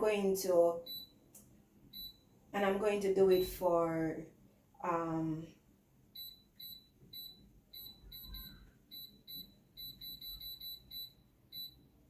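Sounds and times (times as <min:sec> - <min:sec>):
short high control panel beeps: 0:06.2 - 0:11.8.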